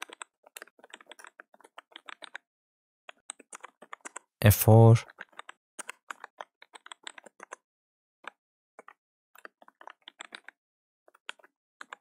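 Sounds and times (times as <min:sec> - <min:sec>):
computer keyboard typing: 0:00.0 - 0:02.5, 0:03.1 - 0:04.3, 0:05.2 - 0:07.6, 0:08.8 - 0:10.6.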